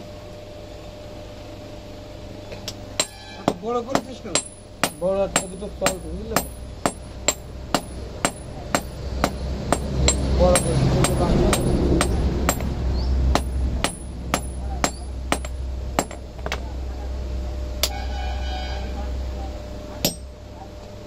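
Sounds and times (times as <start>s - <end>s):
hammer striking iron on anvil: 3.0s - 16.6s, 17.8s - 18.0s, 20.0s - 20.4s.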